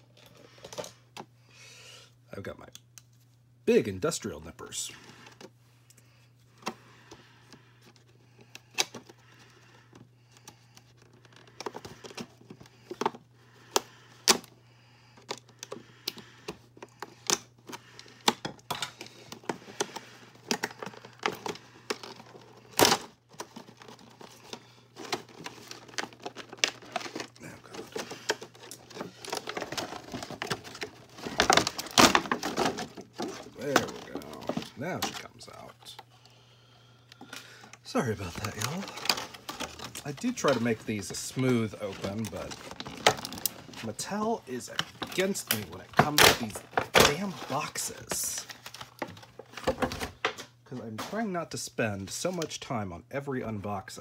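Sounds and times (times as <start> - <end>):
packaging scraping and rustling: 15.2 - 36.1, 37.2 - 51.3
plastic packaging crinkling: 15.2 - 36.1, 37.2 - 50.4.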